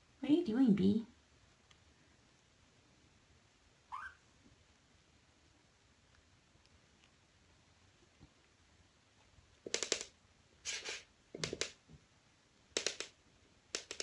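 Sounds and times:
rapid clicking and rattling: 0:09.7 - 0:10.2, 0:12.8 - 0:13.2, 0:13.8 - 0:14.0.

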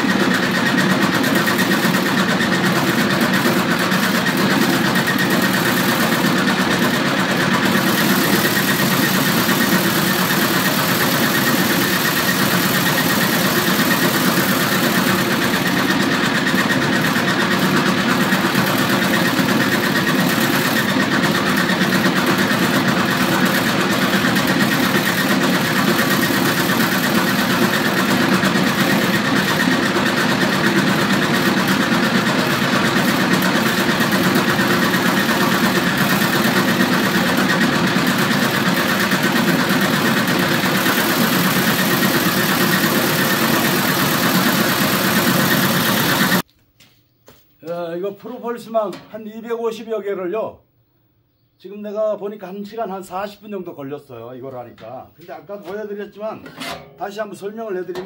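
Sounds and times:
motor-driven beating drum: 0:00.0 - 0:46.4.

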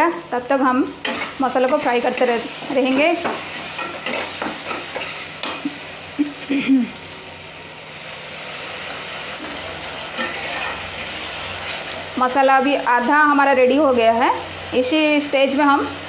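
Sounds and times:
oil sizzling: 0:00.1 - 0:16.0
metal spatula scraping a pan: 0:01.0 - 0:05.6, 0:09.4 - 0:11.9.

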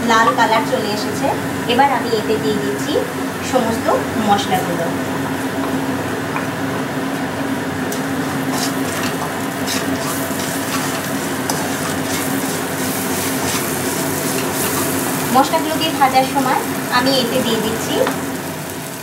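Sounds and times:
onions sizzling in hot oil: 0:00.0 - 0:19.0
wooden spatula scraping a pan: 0:08.2 - 0:15.0.

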